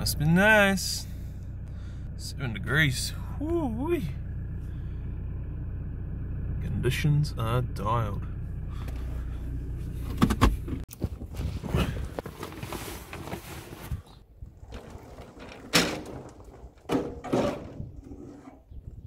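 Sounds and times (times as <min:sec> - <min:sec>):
car engine running: 0:00.0 - 0:10.9
rustling: 0:10.9 - 0:18.6
thuds and knocks of loading: 0:15.3 - 0:17.9.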